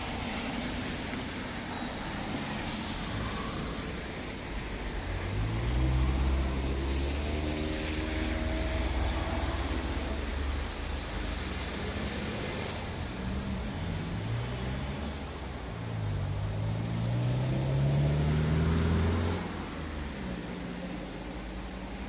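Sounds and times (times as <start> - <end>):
low traffic rumble: 0.0 - 22.0
vehicle engine passing: 4.6 - 22.0.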